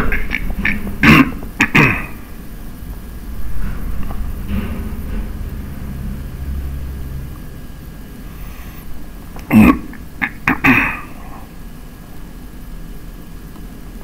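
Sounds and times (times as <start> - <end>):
person coughing: 0.0 - 2.3, 9.4 - 11.5
low steady hum: 0.0 - 14.0.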